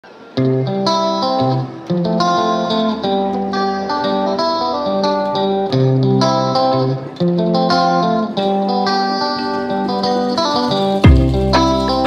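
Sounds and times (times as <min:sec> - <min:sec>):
guitar melody over chords: 0:00.0 - 0:12.0.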